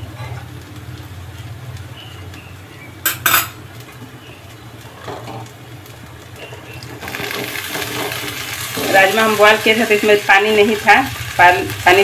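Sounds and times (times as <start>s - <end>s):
metal kitchenware clinking: 3.0s - 3.6s
beans pouring into hot pan: 7.0s - 12.0s.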